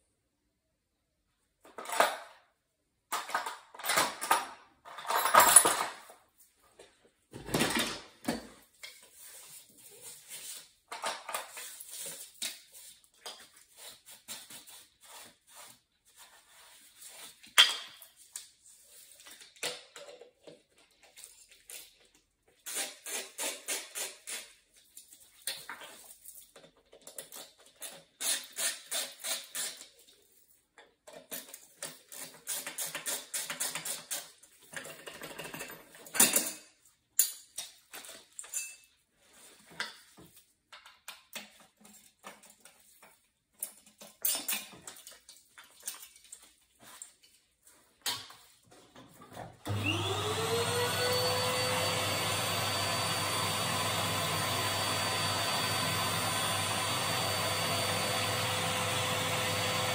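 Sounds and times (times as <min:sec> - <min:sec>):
metal tools clinking and scraping: 0:03.1 - 0:06.2, 0:34.6 - 0:39.1, 0:43.7 - 0:45.3.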